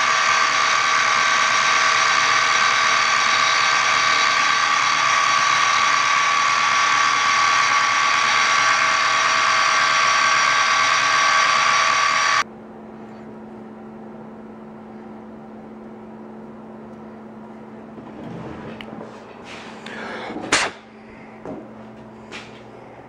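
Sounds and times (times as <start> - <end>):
milling machine cutting whine: 0.0 - 12.4
low steady machine hum: 0.0 - 23.0.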